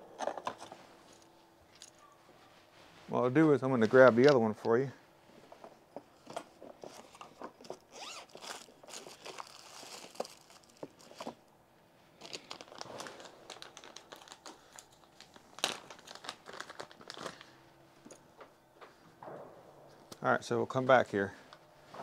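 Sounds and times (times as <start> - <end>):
plastic packaging rustling: 6.2 - 11.4, 12.1 - 18.2.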